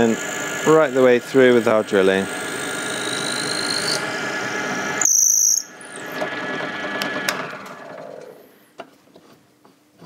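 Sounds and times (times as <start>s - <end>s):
drill bit squeal: 0.0s - 6.2s
drill motor spinning down: 0.0s - 8.5s.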